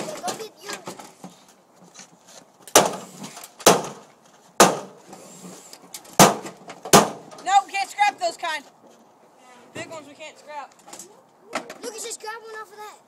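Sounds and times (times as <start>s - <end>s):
sharp knocks on metal: 2.7s - 4.0s, 4.6s - 5.0s, 6.2s - 7.4s.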